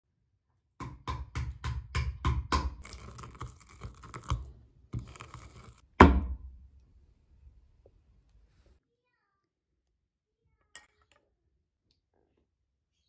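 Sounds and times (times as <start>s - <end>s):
scraping and crunching: 2.8s - 5.9s
wooden pounder knocking on board: 6.0s - 6.4s.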